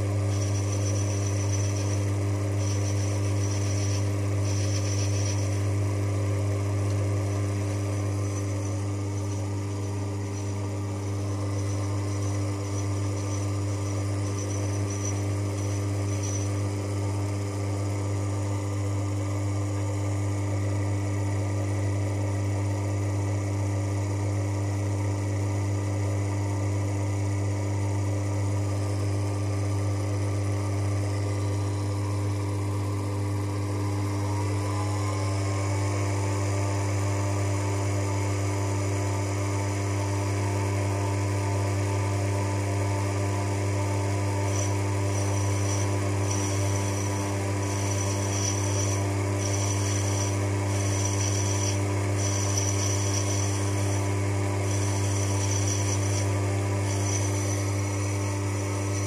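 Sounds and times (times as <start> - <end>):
lathe motor deep hum: 0.0 - 59.0
high thin whine: 7.2 - 16.8, 44.4 - 59.0.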